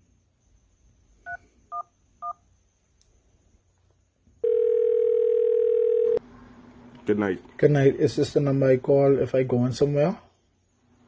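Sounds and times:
phone ringing tone: 4.4 - 6.2.

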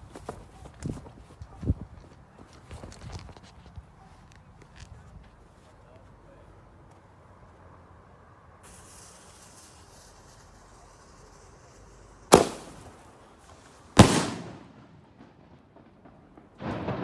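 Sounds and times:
firework shell launch bang: 8.6 - 13.2, 14.0 - 14.9
burning fuse hissing: 8.6 - 14.4
firework shell bursting: 8.6 - 17.0.

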